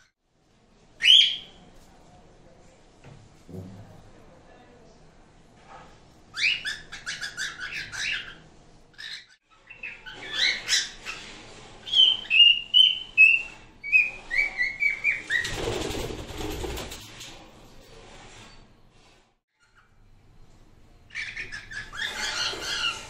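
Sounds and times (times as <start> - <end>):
cockatiels chirping: 6.3 - 15.5, 21.1 - 23.0.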